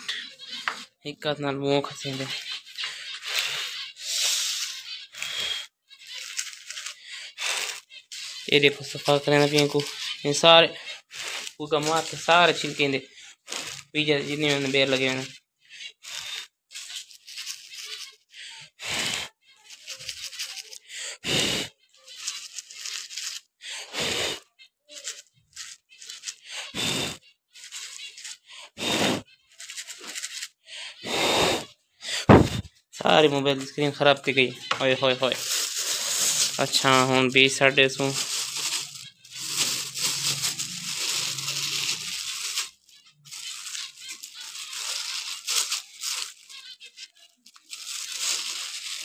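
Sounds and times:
seed rustling in dish: 1.8 - 15.3, 16.0 - 18.2, 19.0 - 20.8, 22.0 - 31.6, 32.4 - 49.0
breath puffs hitting microphone: 31.0 - 32.8.

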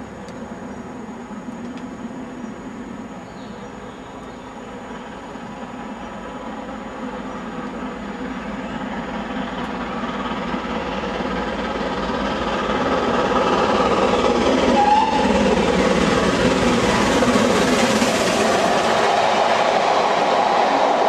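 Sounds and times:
steam train rumbling on rails: 0.0 - 21.0.

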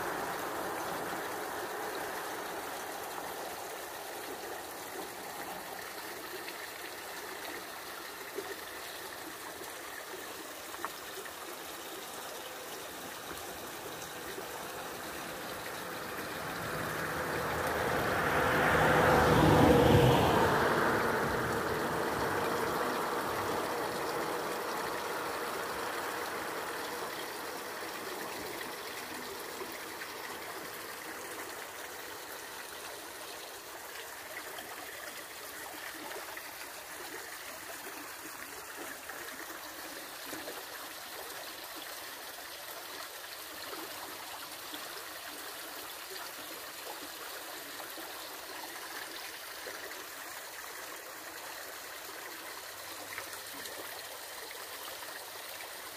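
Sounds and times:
river water rushing: 0.0 - 55.9.

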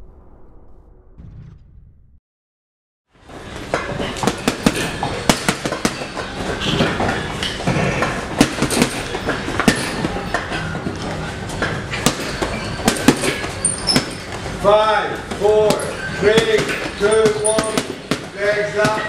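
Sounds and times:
steady background noise: 3.1 - 19.0
boxing gloves hitting punchbag: 4.2 - 7.0, 8.4 - 10.2, 12.0 - 14.3, 15.4 - 19.0.

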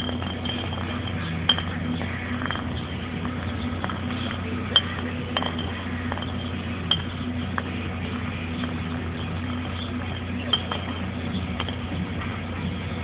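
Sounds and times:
bottle clinking: 0.0 - 12.0
steady low hum: 0.0 - 13.0.

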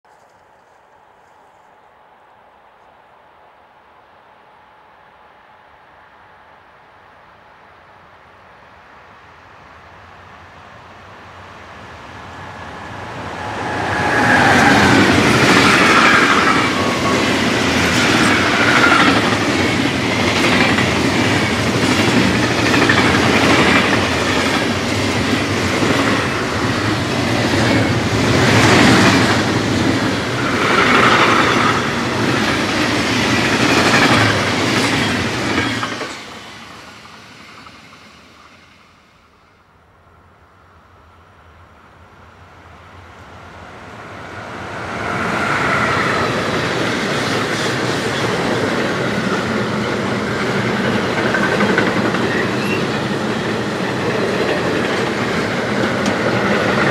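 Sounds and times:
freight train passing: 3.8 - 56.9
wheels running on rails: 45.8 - 56.9.

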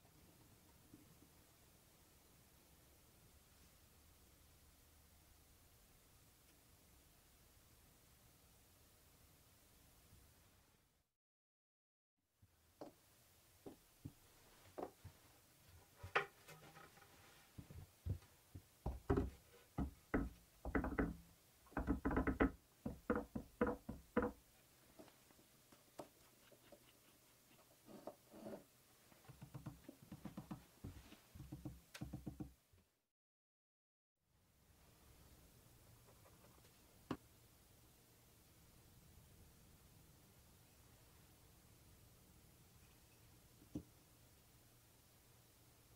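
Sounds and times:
wooden blocks knocking on workbench: 18.8 - 21.2.

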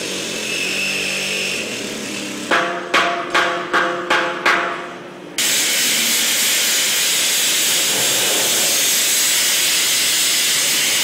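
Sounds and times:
sandblaster hissing: 5.4 - 11.0.

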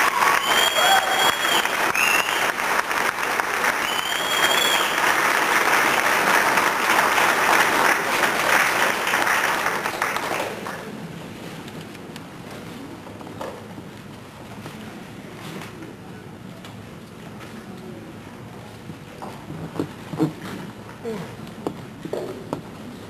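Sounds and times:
high whistles: 0.0 - 2.6, 3.8 - 5.1
audience applauding: 0.0 - 11.0.

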